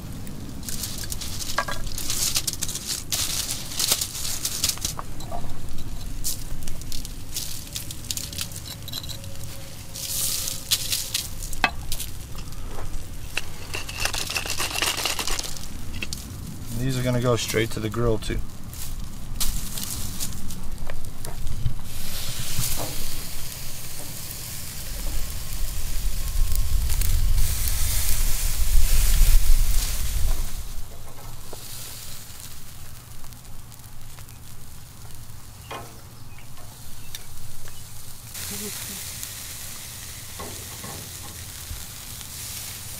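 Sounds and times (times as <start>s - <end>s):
steak sizzling with crackles: 0.0s - 42.9s.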